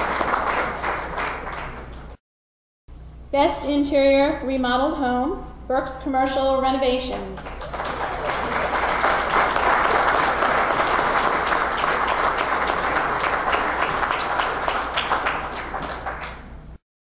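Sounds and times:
audience applauding: 0.0 - 2.2, 7.4 - 16.6.

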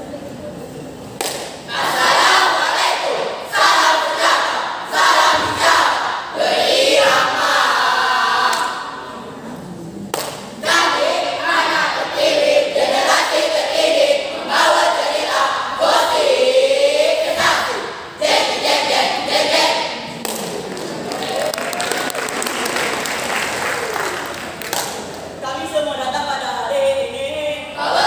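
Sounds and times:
group chanting in unison: 1.7 - 9.6, 10.6 - 20.8, 27.8 - 28.0.

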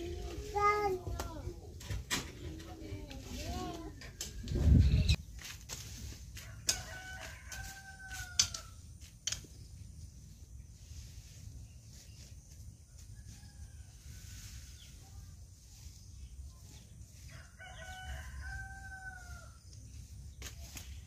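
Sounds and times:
rooster crowing: 6.4 - 8.8, 17.3 - 19.6.

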